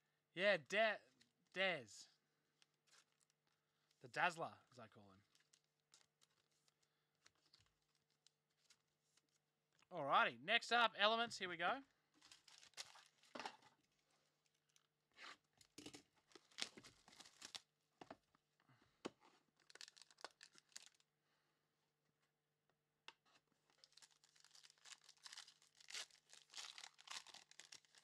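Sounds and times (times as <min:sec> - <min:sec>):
plastic wrap tearing and crinkling: 0:12.2 - 0:13.4, 0:16.3 - 0:17.7, 0:19.6 - 0:21.0, 0:23.7 - 0:28.0.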